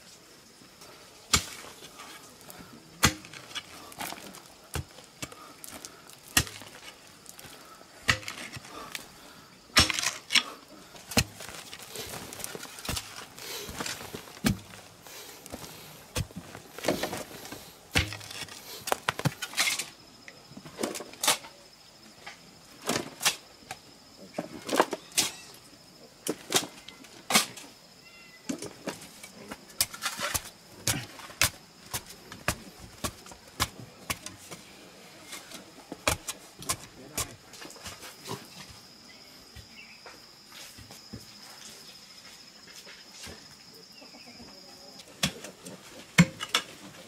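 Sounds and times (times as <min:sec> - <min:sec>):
clods of soil dropping: 0:01.3 - 0:09.1, 0:09.7 - 0:10.4, 0:11.0 - 0:19.8
metal tool digging into clay: 0:09.8 - 0:10.4.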